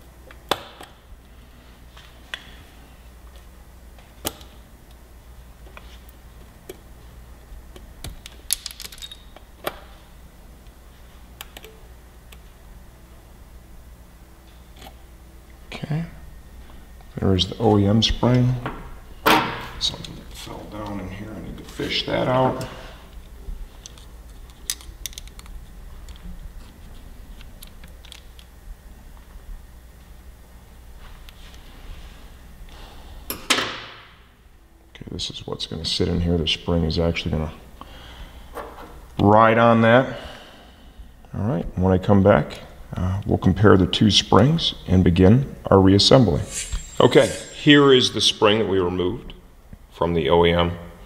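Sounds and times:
low steady hum: 0.0s - 51.0s
small clicks of parts handled: 7.7s - 9.8s, 23.2s - 26.3s, 27.4s - 28.5s.

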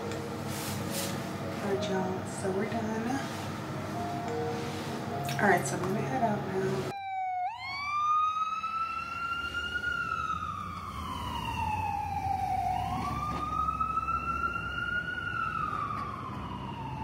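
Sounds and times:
low rumble of city traffic: 0.0s - 17.0s
ambulance siren wailing: 6.8s - 17.0s.

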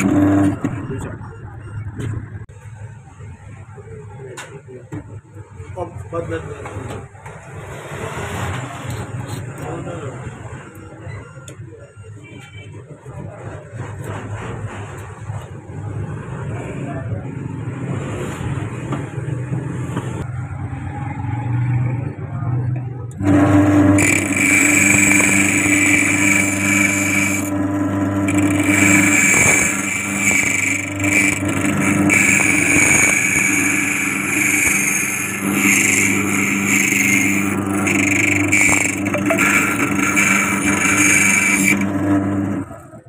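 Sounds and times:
metallic grinding whine: 0.0s - 2.5s, 23.1s - 43.0s
key-cutting machine humming: 23.2s - 42.8s.

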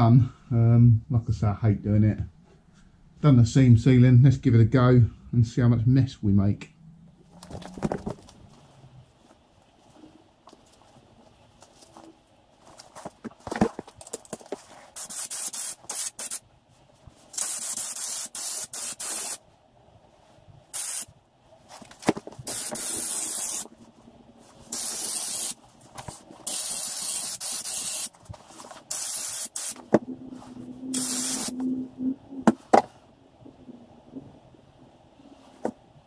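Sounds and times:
spray gun hissing bursts: 15.0s - 16.4s, 17.3s - 19.4s, 20.7s - 21.1s, 22.4s - 23.7s, 24.7s - 25.6s, 26.4s - 28.1s, 28.9s - 29.8s, 30.9s - 31.6s.

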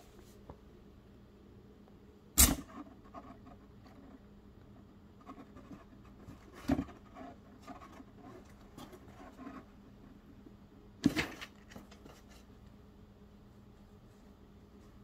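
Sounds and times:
cardboard box rustling and scratching: 5.3s - 9.8s.

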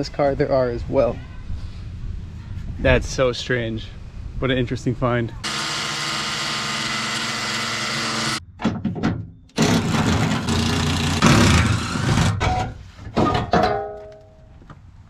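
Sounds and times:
cordless driver running: 5.4s - 8.4s.

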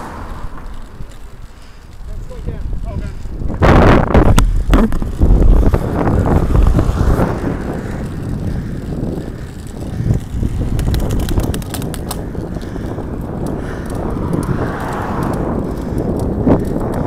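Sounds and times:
bike tyres rumbling on tarmac: 0.0s - 17.0s
wind buffeting microphone: 0.0s - 17.0s
sharp clicks: 9.4s - 17.0s.

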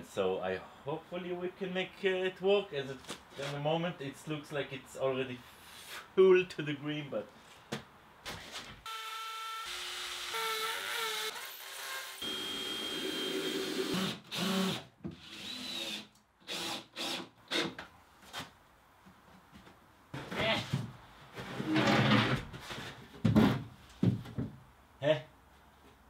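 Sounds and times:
cordless drill driving screws: 8.9s - 17.7s.

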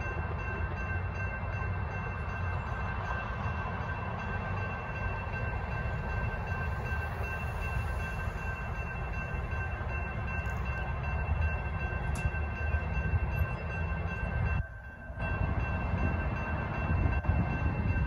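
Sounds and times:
railroad crossing bells ringing: 0.0s - 18.0s.

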